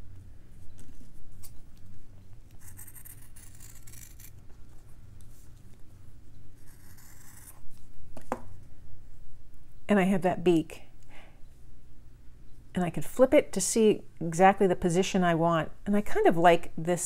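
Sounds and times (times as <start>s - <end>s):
scissors snipping fabric: 2.8s - 4.4s.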